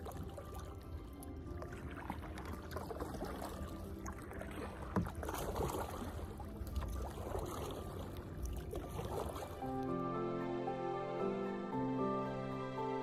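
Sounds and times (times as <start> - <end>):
paddles splashing in water: 0.0 - 10.0.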